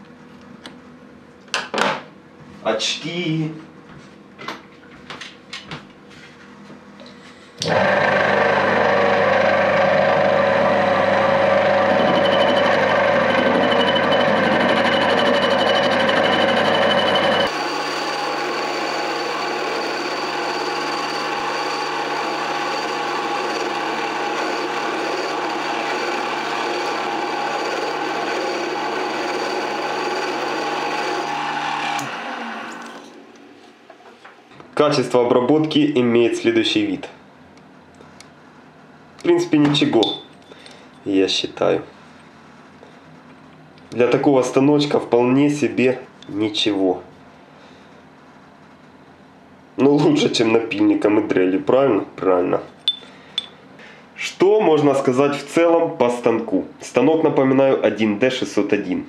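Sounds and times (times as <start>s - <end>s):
lathe running: 7.7s - 33.7s.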